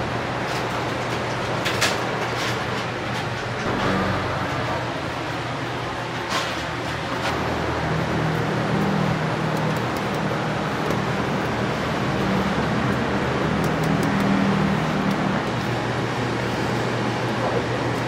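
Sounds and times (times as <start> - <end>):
traffic-like background noise: 0.0 - 18.0.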